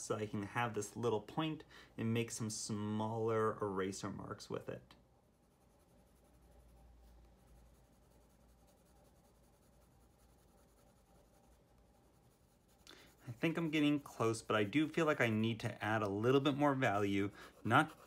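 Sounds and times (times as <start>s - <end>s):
low room hum: 0.0s - 18.0s
drawing tools scratching on paper: 5.3s - 18.0s.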